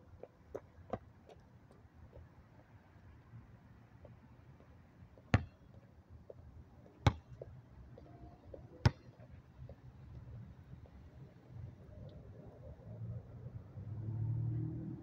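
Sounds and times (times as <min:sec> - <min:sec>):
basketball bouncing on hard court: 0:05.3 - 0:05.6, 0:07.0 - 0:07.4, 0:08.8 - 0:09.2.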